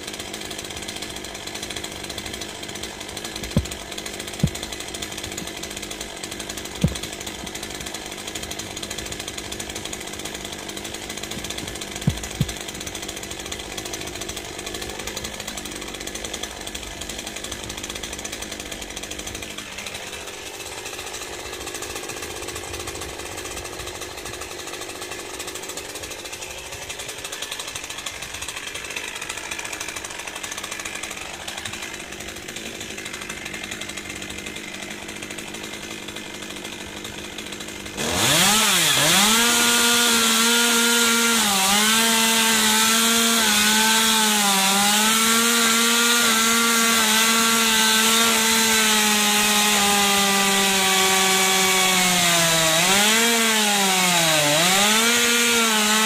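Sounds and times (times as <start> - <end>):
chainsaw idling: 0.0 - 56.0
sharp knocks: 3.4 - 5.5, 6.7 - 7.2, 11.3 - 12.7.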